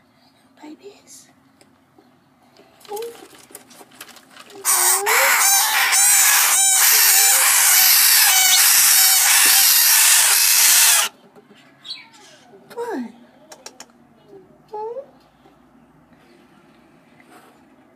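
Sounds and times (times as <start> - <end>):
parrot nestlings rasping: 4.6 - 11.1.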